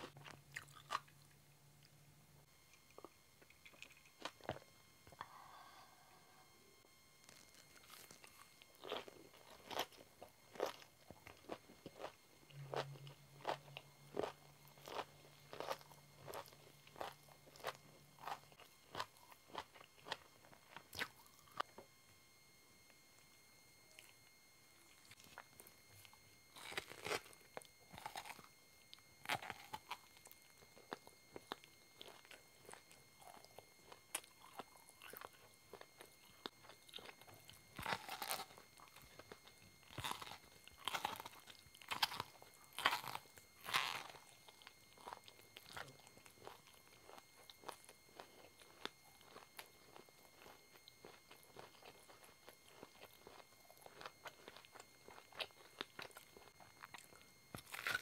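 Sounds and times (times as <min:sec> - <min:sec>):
wet chewing: 0:00.5 - 0:01.2, 0:25.0 - 0:58.0
crunching corn on the cob: 0:07.2 - 0:21.6, 0:25.1 - 0:28.5, 0:29.2 - 0:58.0.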